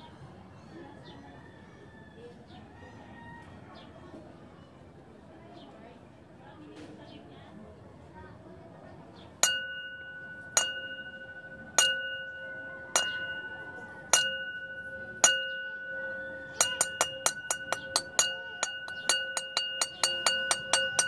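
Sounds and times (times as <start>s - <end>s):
small bell-like object struck: 9.4s - 21.0s.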